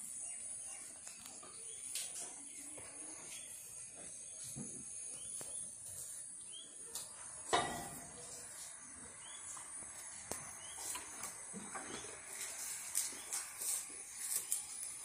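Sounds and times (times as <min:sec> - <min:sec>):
bird chirps: 0:10.4 - 0:11.2.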